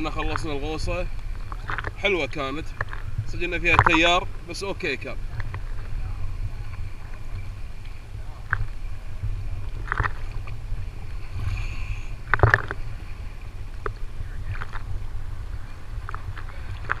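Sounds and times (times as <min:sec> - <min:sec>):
low rumble: 0:00.0 - 0:17.0
water splashing against camera housing: 0:01.4 - 0:04.6, 0:09.6 - 0:10.6, 0:12.2 - 0:12.8.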